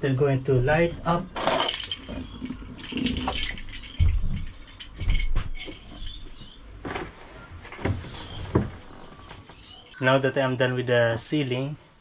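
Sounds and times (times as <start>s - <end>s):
keys jingling: 1.4s - 6.6s, 8.9s - 10.0s.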